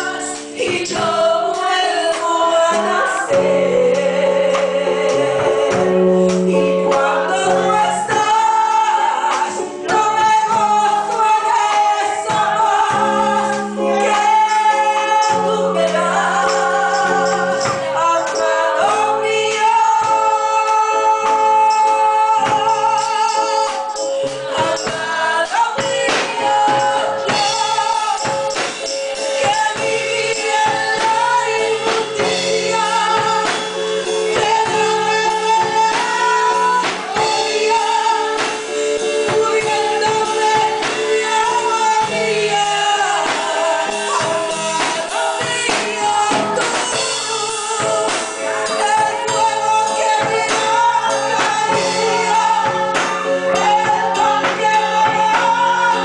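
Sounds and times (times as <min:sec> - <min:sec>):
church band drums: 0:00.0 - 0:56.0
woman singing into microphone: 0:00.0 - 0:56.0.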